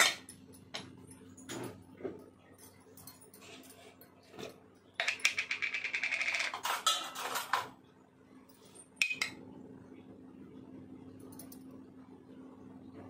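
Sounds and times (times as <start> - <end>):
dishes and utensils clinking: 0.0 - 7.7
low steady hum: 0.0 - 13.0.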